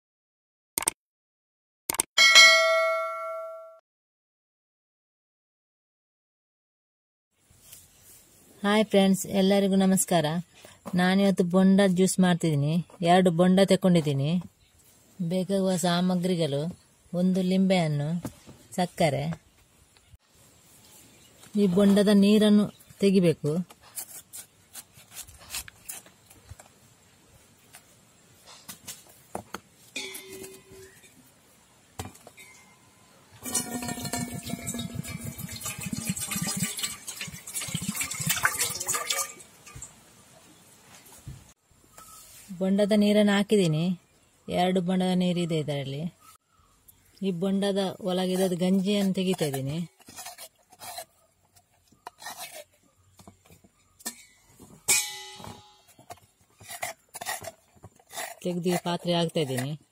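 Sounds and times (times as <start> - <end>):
clank on steel bowl: 30.0 - 31.0, 54.1 - 55.8
metal spoon scraping coconut: 33.4 - 37.3, 48.1 - 53.2, 55.8 - 59.9
liquid pouring into a metal pot: 33.4 - 39.9.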